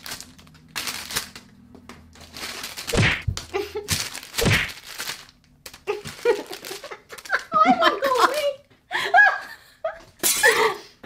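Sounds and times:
handling scuffling: 0.0 - 8.5
dull thumps: 2.9 - 4.7.

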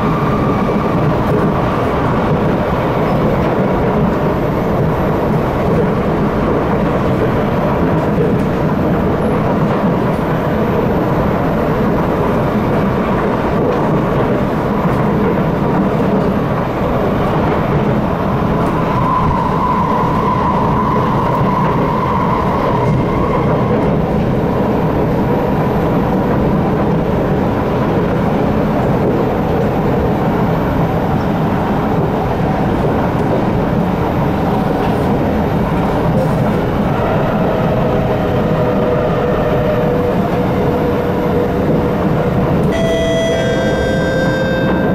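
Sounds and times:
passing train on opposite track: 0.0 - 44.9
train running at speed: 0.0 - 44.9.

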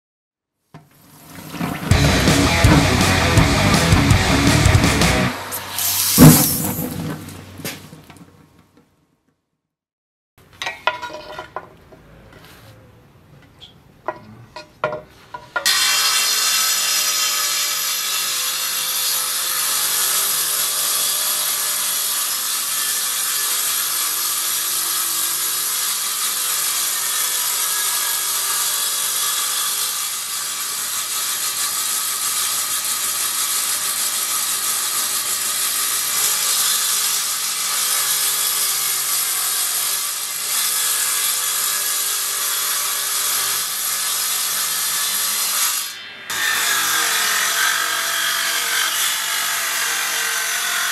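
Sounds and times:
table saw blade whining: 1.9 - 7.2.

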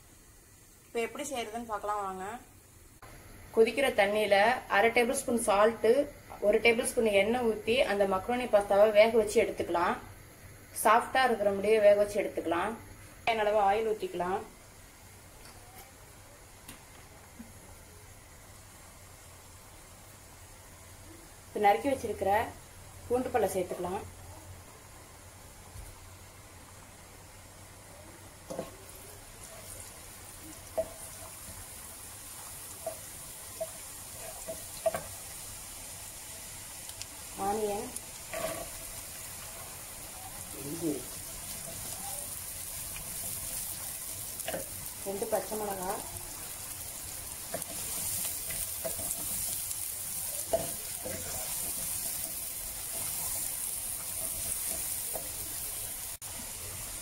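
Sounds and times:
garlic sizzling in hot oil: 0.0 - 57.0
wooden spatula stirring and knocking: 28.4 - 29.8, 47.4 - 53.4.

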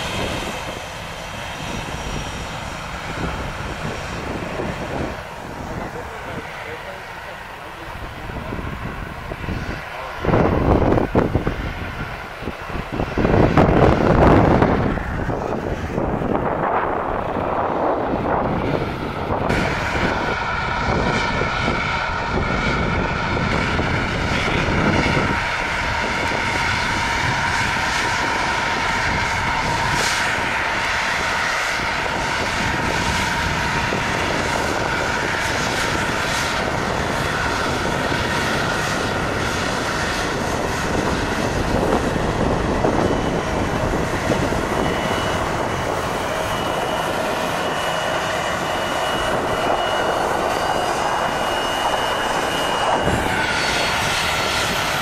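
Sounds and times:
jet engines whining: 0.0 - 55.0.

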